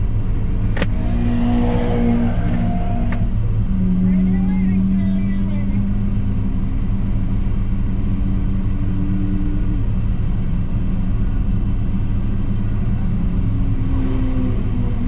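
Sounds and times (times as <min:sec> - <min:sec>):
car engines idling: 0:00.0 - 0:15.0.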